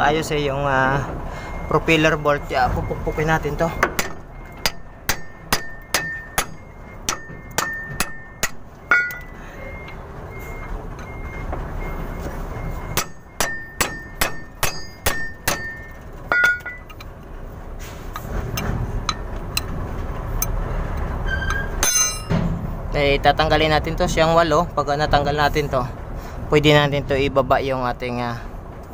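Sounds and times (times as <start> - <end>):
hammer striking metal bolt: 3.8 - 9.3, 12.9 - 17.1, 21.5 - 22.6.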